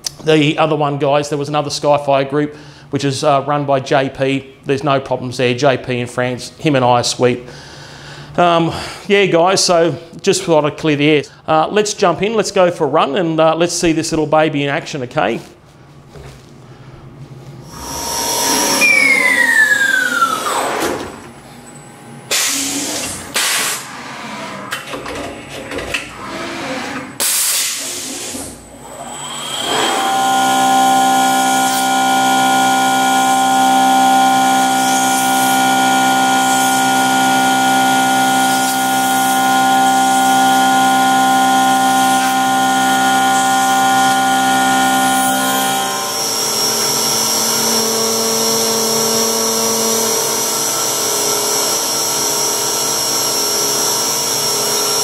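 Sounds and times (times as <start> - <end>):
whine falling in pitch: 17.6 - 22.4
mill cutting metal whine: 17.6 - 55.0.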